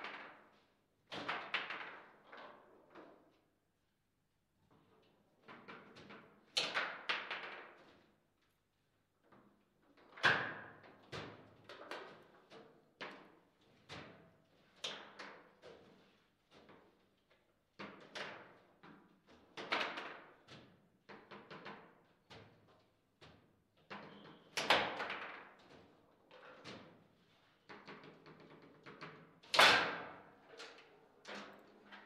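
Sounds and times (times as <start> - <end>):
foosball ball clacks and thuds: 5.5 - 7.9.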